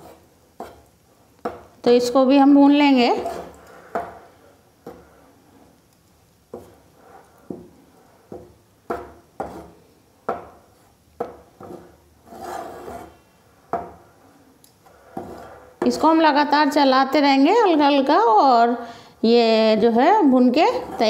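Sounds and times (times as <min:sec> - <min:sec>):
metal spatula scraping a pan: 0:00.0 - 0:00.9, 0:02.7 - 0:05.8, 0:06.5 - 0:16.4, 0:20.3 - 0:21.0.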